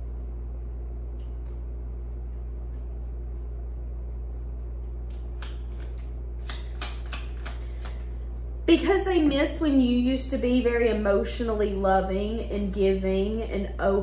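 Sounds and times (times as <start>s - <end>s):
steady low hum: 0.0s - 14.0s
sharp card snaps: 4.6s - 8.1s
cards being shuffled: 4.6s - 8.4s.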